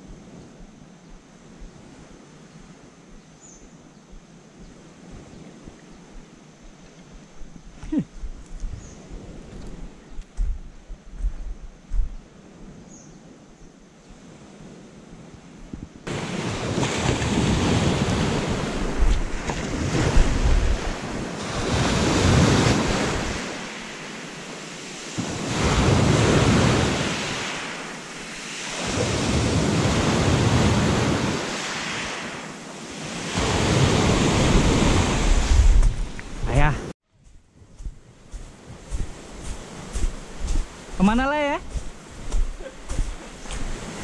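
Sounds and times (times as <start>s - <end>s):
wind buffeting microphone: 4.1s - 13.4s, 14.0s - 23.8s, 32.9s - 44.0s
sea surf washing on shore: 14.2s - 36.9s, 38.3s - 44.0s.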